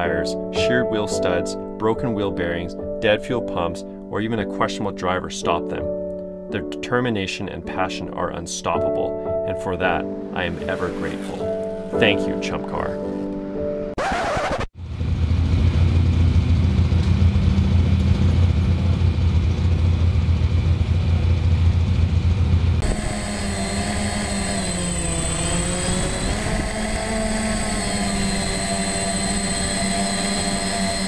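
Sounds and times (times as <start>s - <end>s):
engine droning: 14.8s - 31.0s.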